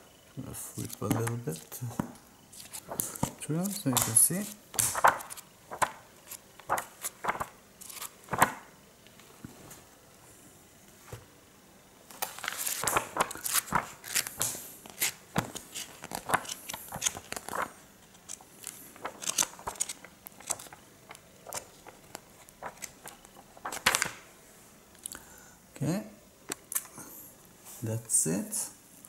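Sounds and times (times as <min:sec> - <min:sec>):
comic book pages flipping: 0:00.8 - 0:08.7, 0:12.1 - 0:24.2.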